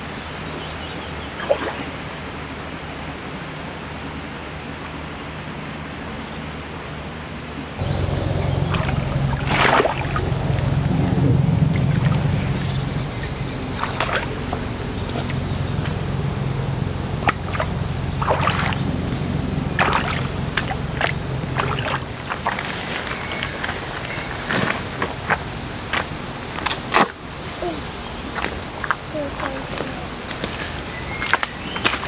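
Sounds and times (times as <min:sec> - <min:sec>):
low motor hum: 0:04.0 - 0:32.0
boots splashing through muddy water: 0:08.6 - 0:10.7, 0:11.8 - 0:16.1, 0:17.2 - 0:32.0
rustling through tall grass: 0:18.2 - 0:27.1.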